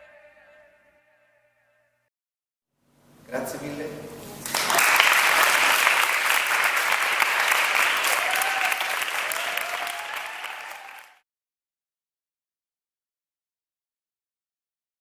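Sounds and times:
people applauding: 0:04.4 - 0:11.2.

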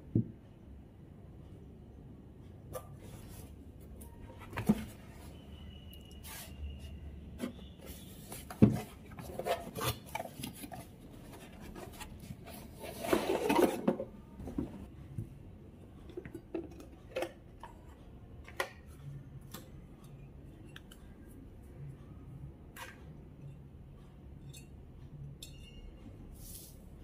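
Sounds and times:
rustling scrape: 0:07.4 - 0:13.9, 0:26.4 - 0:26.8.

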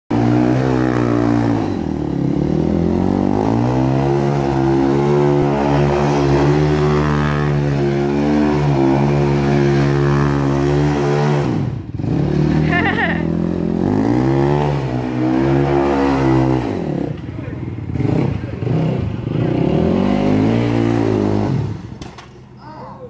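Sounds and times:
quad engine revving high: 0:00.1 - 0:22.1.

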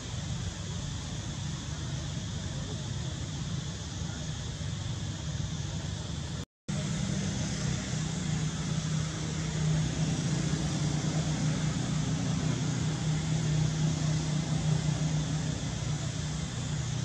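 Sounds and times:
background hiss: 0:00.0 - 0:17.0
motor vehicle humming: 0:04.1 - 0:17.0.

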